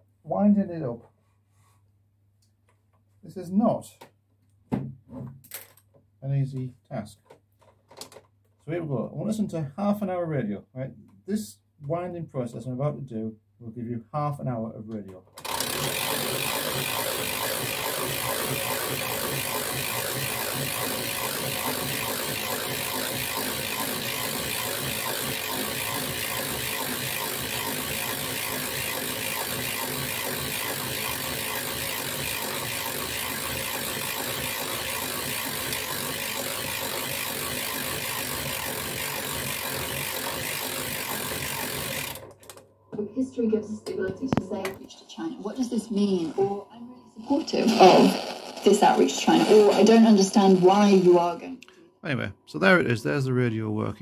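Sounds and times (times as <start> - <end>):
crank clicking and whirring: 15.4 - 42.7.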